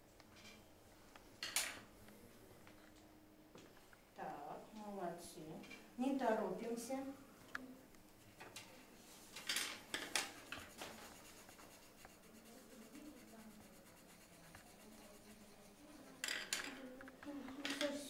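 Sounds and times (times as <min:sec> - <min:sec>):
pencils scratching on a desk: 0:08.2 - 0:18.0.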